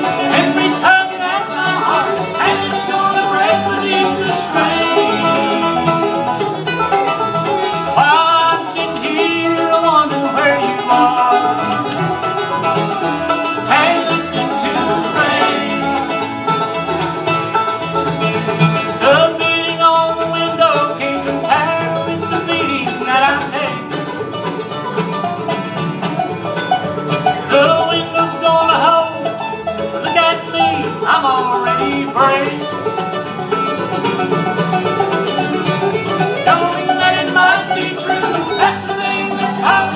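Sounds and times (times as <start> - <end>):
acoustic guitar: 0.0 - 39.9
banjo: 0.0 - 39.9
bluegrass band playing: 0.0 - 39.9.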